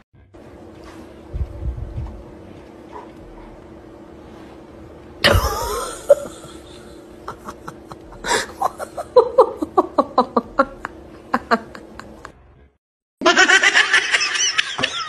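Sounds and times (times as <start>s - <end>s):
person laughing hard: 5.2s - 12.4s, 13.2s - 15.0s.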